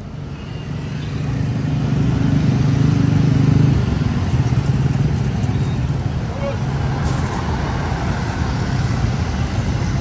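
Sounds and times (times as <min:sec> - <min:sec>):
bus diesel engine passing: 0:00.0 - 0:10.0
street traffic: 0:00.0 - 0:10.0.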